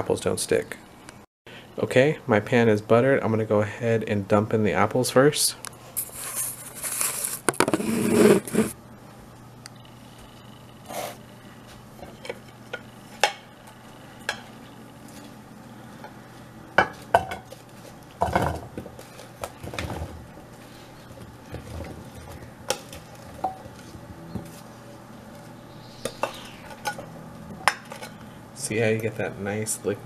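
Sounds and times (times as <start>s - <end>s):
rustling and scraping: 5.9s - 8.8s, 16.9s - 28.2s.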